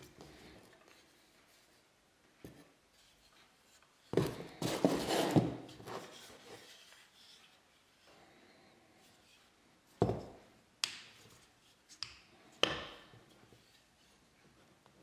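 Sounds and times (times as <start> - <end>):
clattering and sliding: 3.0 - 7.6.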